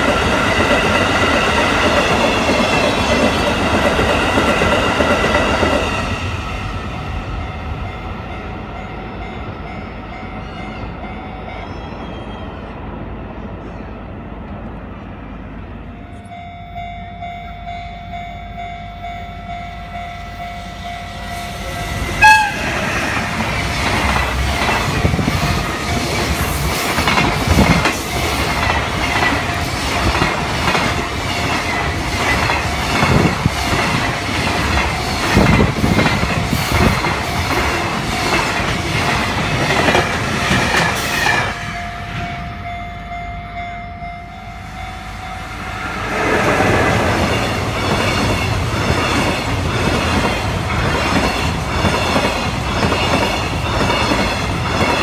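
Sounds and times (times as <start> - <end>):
train wheels clickety-clack: 0.0 - 6.4, 22.0 - 42.3, 46.0 - 55.0
freight train rumbling: 0.0 - 55.0
locomotive horn: 22.0 - 23.1.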